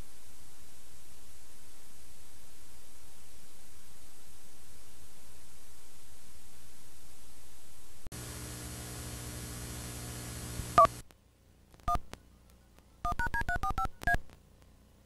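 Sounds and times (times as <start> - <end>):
static hiss: 0.0 - 12.2
steady buzz: 8.1 - 12.2
telephone keypad beeps: 13.0 - 14.2.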